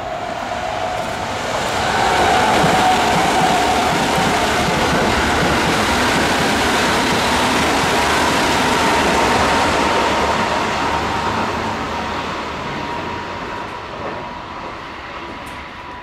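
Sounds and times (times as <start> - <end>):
electric train rumbling: 0.0 - 16.0.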